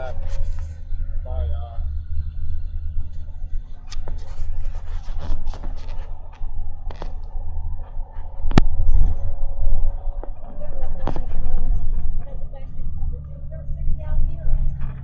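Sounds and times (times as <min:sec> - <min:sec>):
bus rumble: 0:00.0 - 0:15.0
camera handling scraping: 0:03.9 - 0:07.2.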